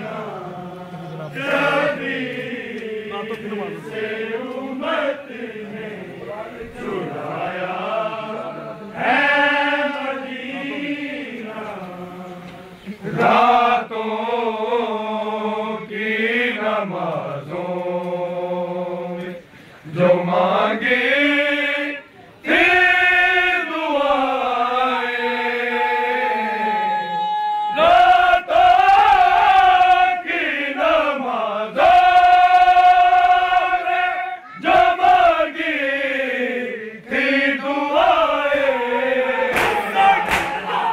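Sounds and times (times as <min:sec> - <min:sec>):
men chanting in chorus: 0:27.7 - 0:40.9.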